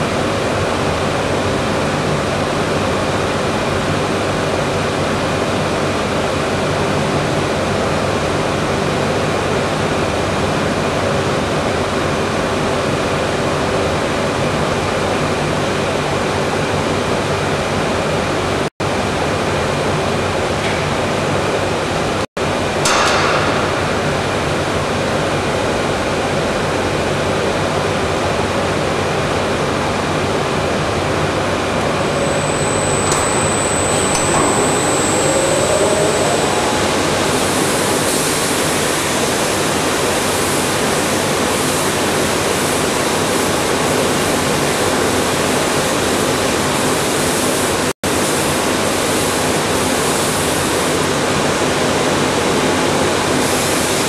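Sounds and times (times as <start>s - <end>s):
sanding machine running: 31.6s - 41.0s.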